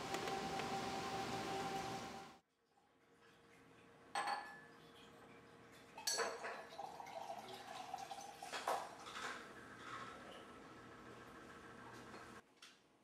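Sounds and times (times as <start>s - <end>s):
glassware clinks and knocks: 4.2s - 4.7s, 6.1s - 6.5s.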